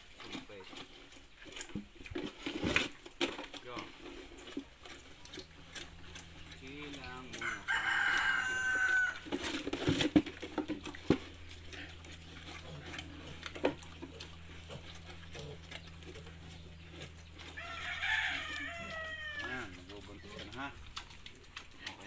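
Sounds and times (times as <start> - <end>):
rooster crowing: 7.4 - 9.4, 17.5 - 19.7.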